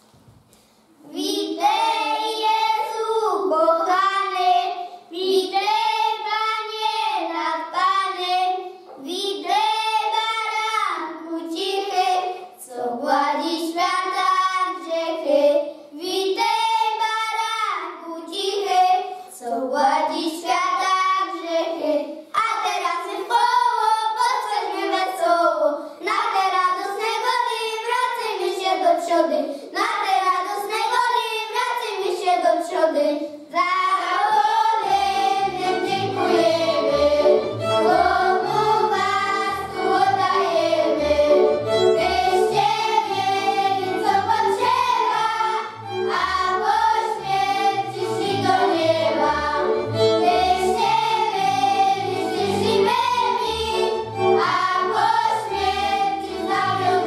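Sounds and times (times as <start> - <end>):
children singing: 1.2 - 8.6, 33.6 - 57.0.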